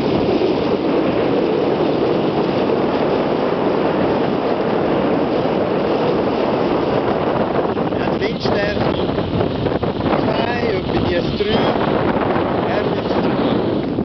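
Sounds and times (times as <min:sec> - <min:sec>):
water washing along hull: 0:00.0 - 0:14.0
wind buffeting microphone: 0:00.0 - 0:14.0.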